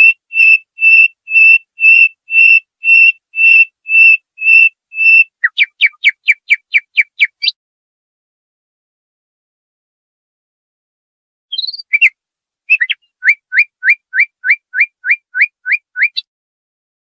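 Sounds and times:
songbird whistled song: 0.0s - 7.6s, 11.5s - 16.3s.

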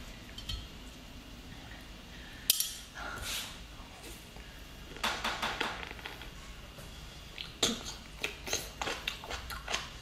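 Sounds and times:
wet biting and slurping: 7.4s - 10.0s.

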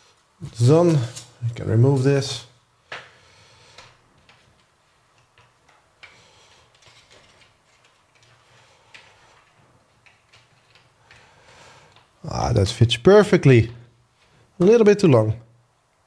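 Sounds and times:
faint clicks and handling noise: 2.9s - 12.2s.

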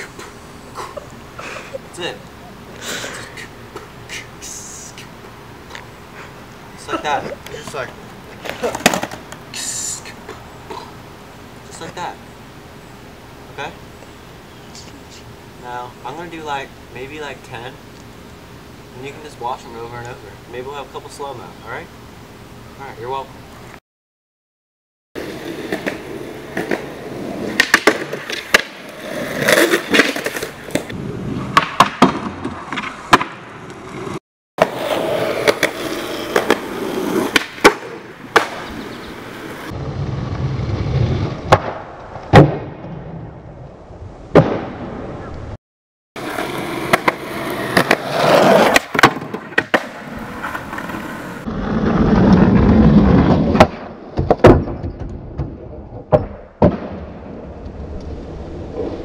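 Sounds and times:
skateboard wheels rolling on concrete: 0.0s - 12.3s, 25.2s - 45.6s, 46.2s - 59.0s
skateboard slapping down: 8.4s - 9.4s, 25.6s - 30.9s, 34.6s - 38.7s, 46.2s - 51.0s
skateboard tail pop clacks: 8.4s - 9.4s, 27.5s - 28.9s, 37.3s - 38.7s, 48.7s - 50.0s
skateboard trucks grinding on metal: 33.8s - 39.7s, 46.2s - 53.8s.

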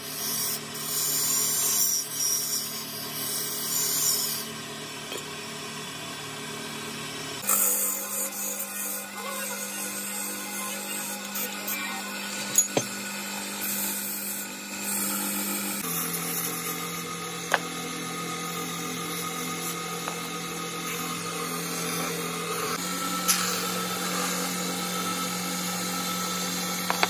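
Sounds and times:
wood lathe humming: 5.8s - 27.0s.

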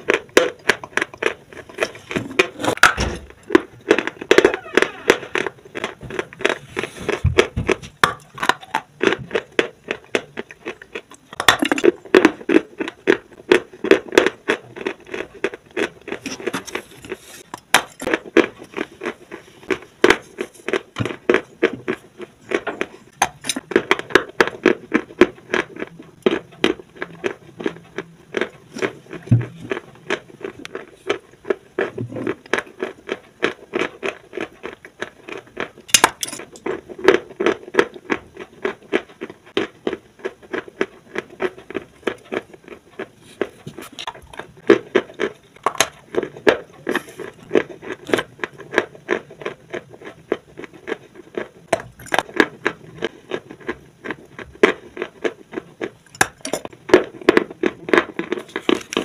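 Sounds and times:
chewing dry chalk crunches: 0.0s - 59.0s.

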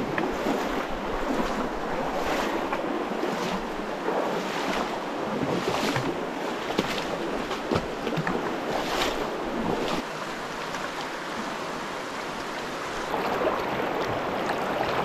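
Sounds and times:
sharp water splashes: 0.0s - 11.7s
river water rushing: 0.0s - 15.0s
sloshing steps wading in water: 0.0s - 15.0s.

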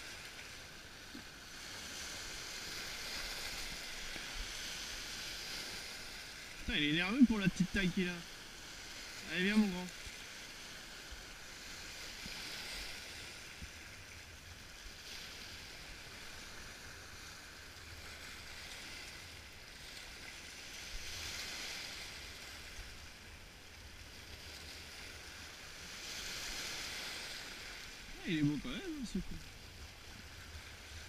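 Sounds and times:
small waves washing over rocks: 0.0s - 31.0s.

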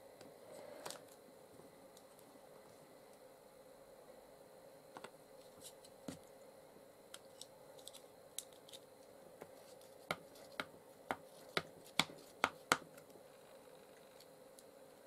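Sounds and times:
ink pad tapping on stamp: 10.1s - 12.8s.

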